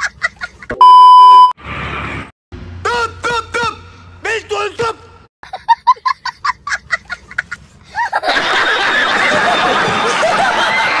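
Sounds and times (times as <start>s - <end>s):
audience laughing: 8.0s - 11.0s.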